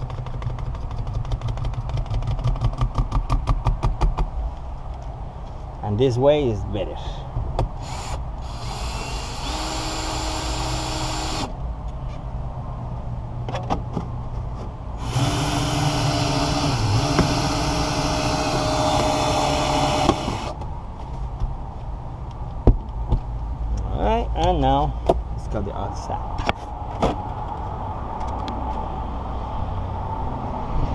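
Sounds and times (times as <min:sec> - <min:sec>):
cordless drill whining: 0:07.8 - 0:11.5, 0:15.0 - 0:20.6.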